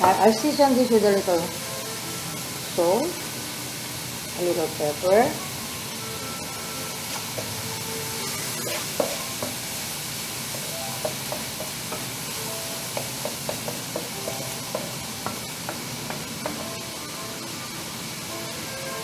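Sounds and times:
onions sizzling in oil: 0.0 - 19.0
wooden spoon scraping pan: 8.5 - 9.2.

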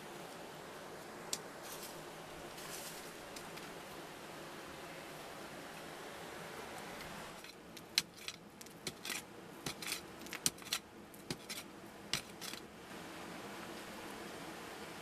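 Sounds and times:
metal blade digging stony soil: 7.4 - 12.7.

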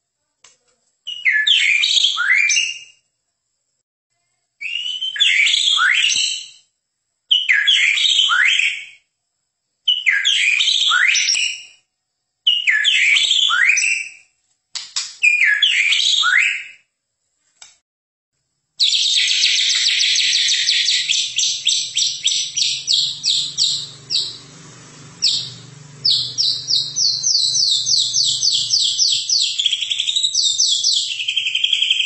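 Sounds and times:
songbird whistling: 1.1 - 3.0, 4.6 - 6.7, 7.3 - 9.1, 9.9 - 11.8, 12.5 - 14.3, 15.2 - 16.9, 18.8 - 24.5, 25.2 - 32.0.

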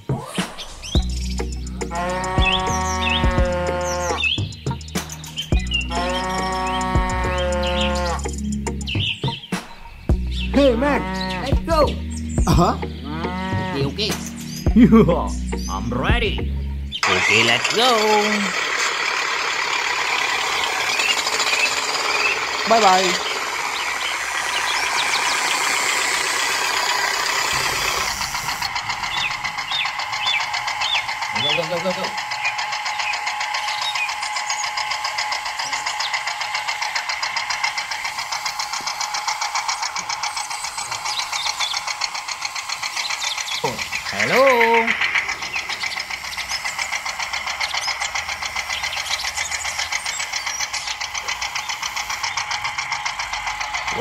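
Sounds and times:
fast even ticking: 0.0 - 54.0
tractor engine running: 0.0 - 54.0.

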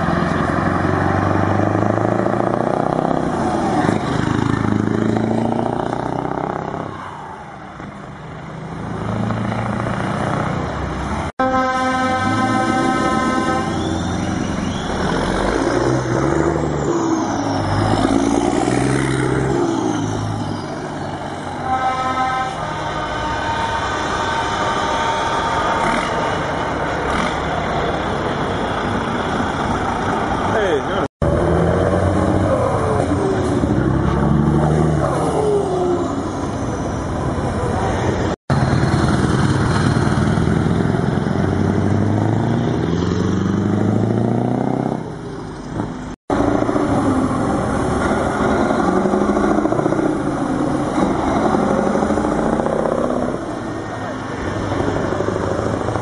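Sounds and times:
truck diesel engines driving past: 0.0 - 56.0
truck air horn blaring: 11.4 - 14.6, 21.5 - 27.4.

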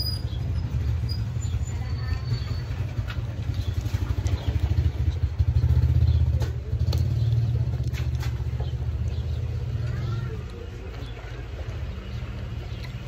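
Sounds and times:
low fluttering engine rumble: 0.0 - 13.0.

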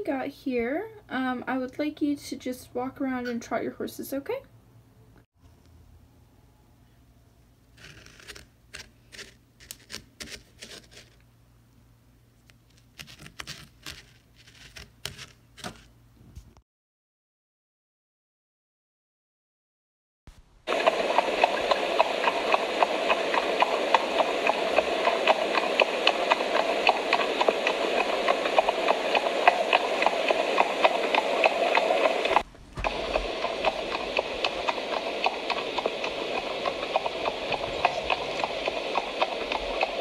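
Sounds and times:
horse hoofbeats trotting: 20.7 - 40.0.

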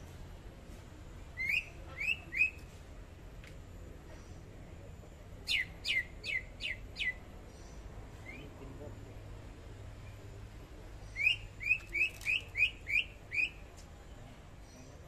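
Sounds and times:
bird singing whistled notes: 1.3 - 2.7, 5.4 - 8.6, 11.0 - 13.7.

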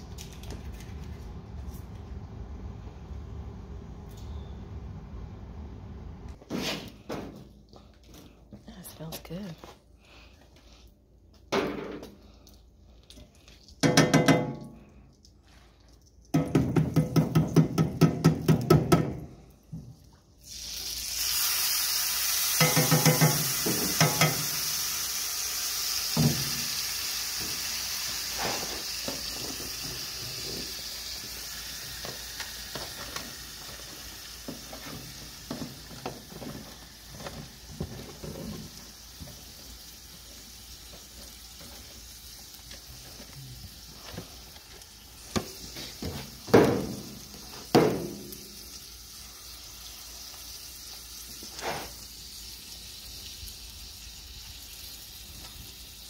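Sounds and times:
utensil knocking on pan: 13.8 - 14.6, 16.4 - 19.2, 22.6 - 24.5
food sizzling in a skillet: 20.4 - 56.0.

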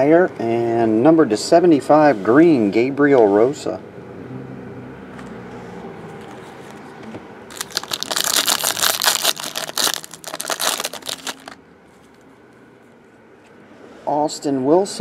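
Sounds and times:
foil wrapper crinkling and tearing: 7.5 - 11.6.

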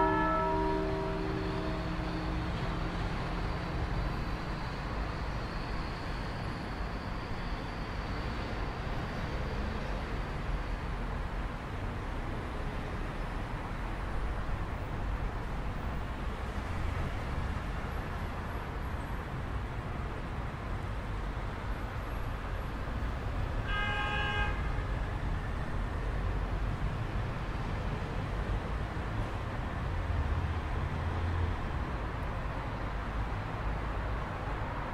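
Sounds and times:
car horn toot: 0.0 - 1.9, 23.7 - 24.7
low rumble of city noise: 0.0 - 34.9.

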